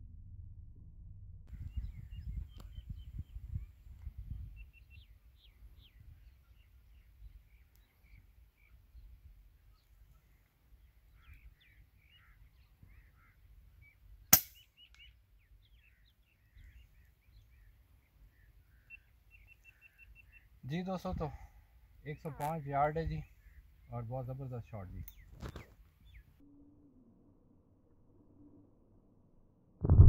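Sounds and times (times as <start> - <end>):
faint small birds chirping: 1.5 - 27.1
air rifle shot crack: 14.3 - 14.6.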